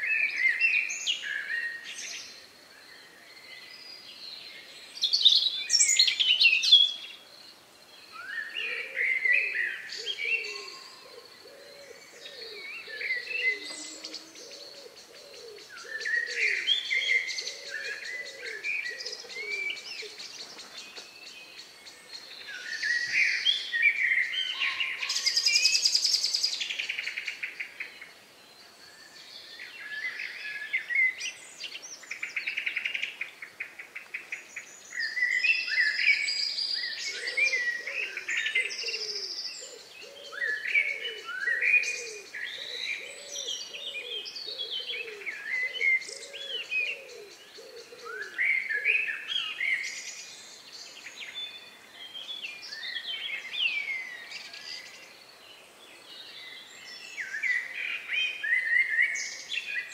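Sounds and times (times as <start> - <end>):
birds singing: 0.0 - 59.9
low bird call: 10.0 - 20.2.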